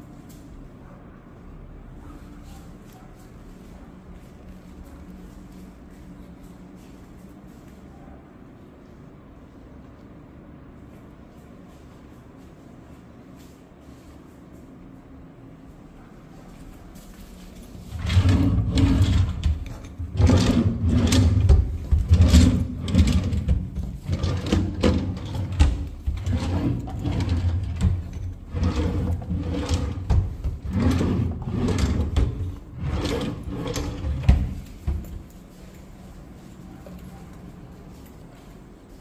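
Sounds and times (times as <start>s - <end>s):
wooden drawers rumbling on runners: 17.9s - 35.1s.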